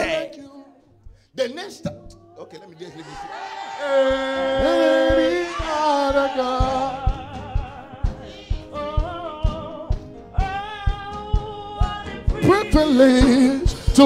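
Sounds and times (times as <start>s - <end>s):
steady beat: 1.0s - 14.0s
person singing long notes: 3.8s - 11.5s.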